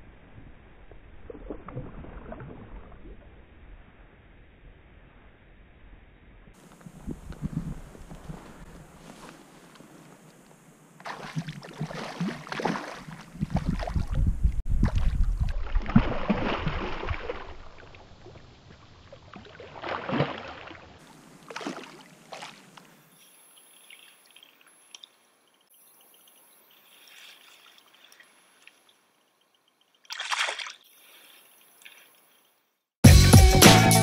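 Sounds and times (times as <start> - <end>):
faint water sounds: 0.0 - 5.1, 6.5 - 32.8
fish splashing in a stream: 11.0 - 14.2, 14.8 - 23.0, 30.0 - 32.2.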